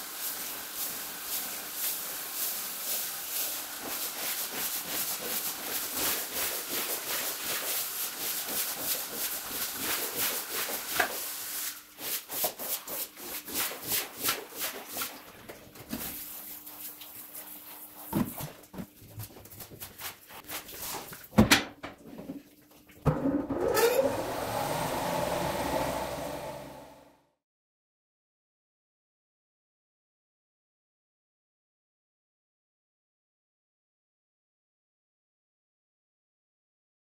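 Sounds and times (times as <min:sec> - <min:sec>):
squeegee scraping wet rug: 0:01.9 - 0:15.3
centrifuge spinning up whine: 0:23.1 - 0:27.2.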